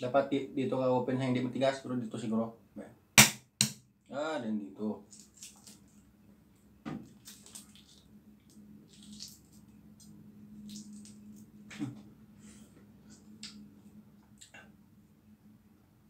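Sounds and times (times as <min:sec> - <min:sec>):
low steady hum: 0:00.0 - 0:16.0
eggshell cracking under fingers: 0:07.2 - 0:11.5.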